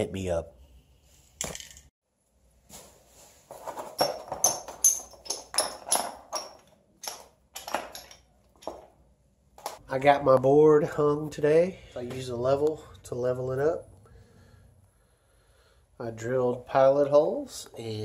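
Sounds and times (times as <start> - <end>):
metal fittings clinking and knocking: 4.0 - 9.0.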